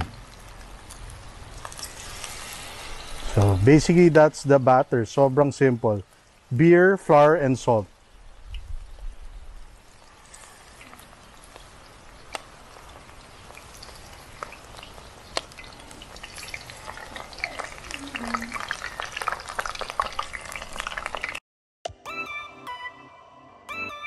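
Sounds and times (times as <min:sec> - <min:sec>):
oil crackling and popping: 0:00.0 - 0:04.5, 0:07.7 - 0:21.4
battered leaves deep-frying in oil: 0:00.0 - 0:21.4.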